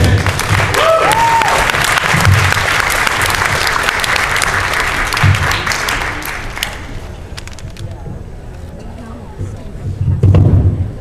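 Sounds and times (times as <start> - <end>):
audience applauding: 0.0 - 7.0.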